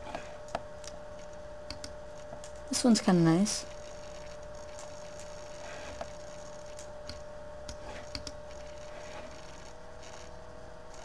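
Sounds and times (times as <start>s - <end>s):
electrical hum: 0.0s - 11.0s
computer mouse clicks: 1.7s - 2.6s, 7.0s - 8.4s.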